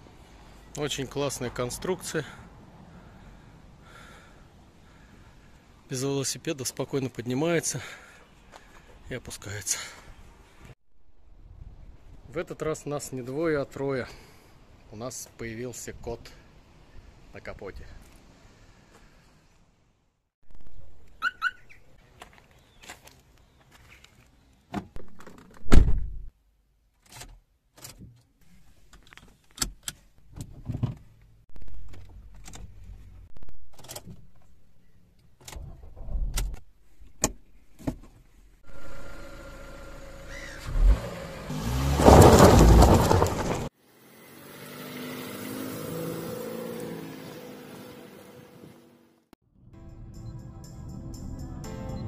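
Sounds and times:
car engine idling: 38.7 - 41.1
car engine revving: 38.7 - 48.3.

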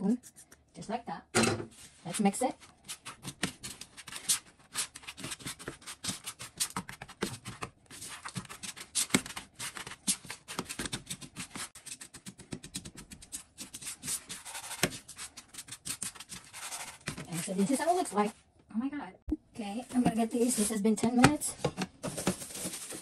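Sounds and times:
spatula scraping sugar in bowl: 13.7 - 17.5.

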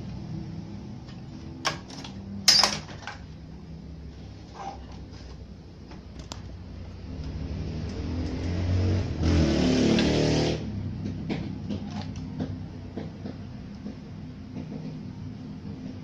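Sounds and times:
vehicle engine revving: 7.0 - 11.4.

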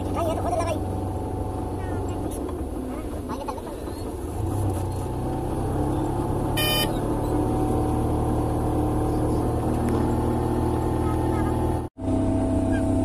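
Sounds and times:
car engine running: 0.0 - 13.0
car horn toot: 6.6 - 7.0.

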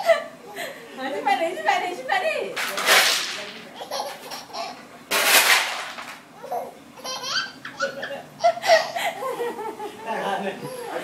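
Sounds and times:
baby laughing: 3.7 - 4.9, 6.4 - 9.6
woman laughing: 7.8 - 10.4.

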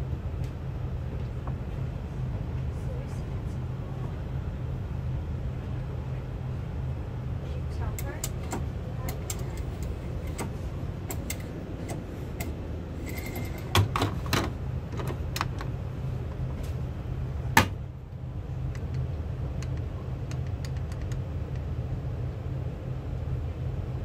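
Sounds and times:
aircraft cabin hum: 0.0 - 24.0.

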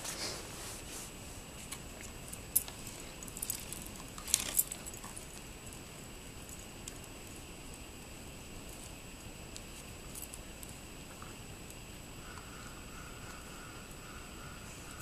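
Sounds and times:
stick clicking and rattling: 2.4 - 5.5.

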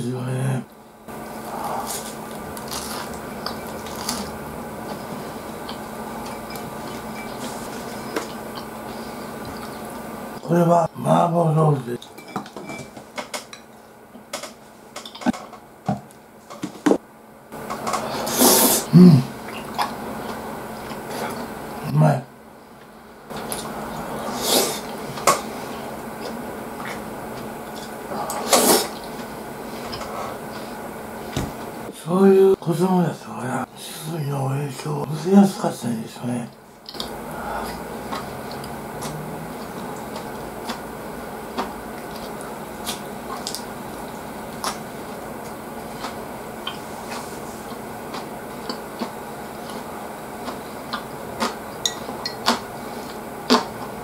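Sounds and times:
chewing and mouth noises: 1.6 - 10.1, 36.8 - 53.9
person eating with a spoon: 45.4 - 53.7.

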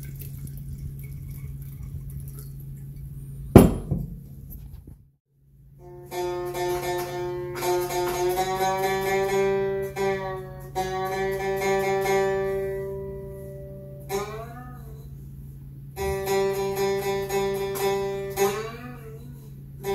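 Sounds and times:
guitar strummed slowly: 5.8 - 19.9.

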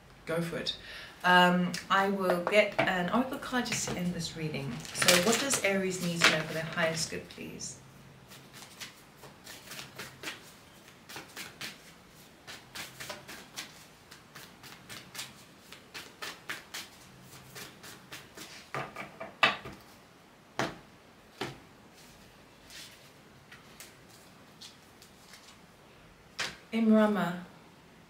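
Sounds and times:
cards being shuffled: 4.7 - 7.1, 8.3 - 18.7, 22.7 - 25.6.

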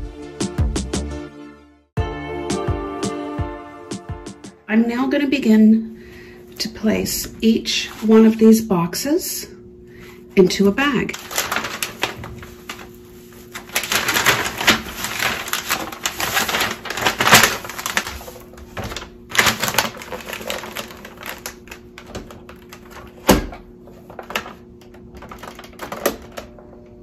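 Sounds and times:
plastic bag crinkling: 10.8 - 26.4.

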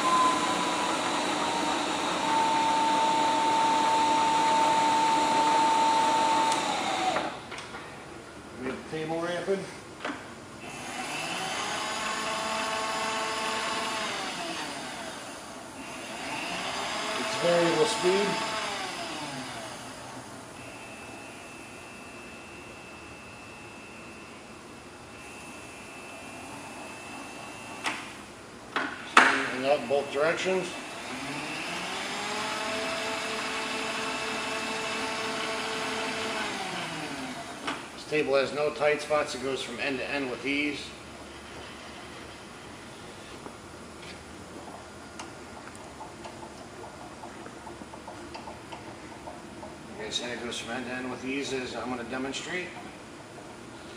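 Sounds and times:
servo feed motor whining: 0.0 - 7.4, 10.6 - 24.2, 30.2 - 37.8.

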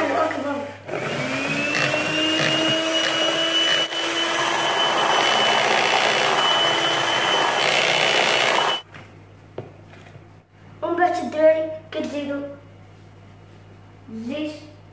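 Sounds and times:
electric hand mixer whining: 0.9 - 8.8.

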